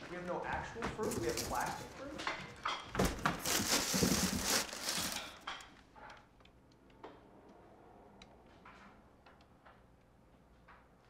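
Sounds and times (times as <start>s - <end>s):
cardboard box crinkling and rustling: 1.0s - 2.0s, 3.0s - 5.5s.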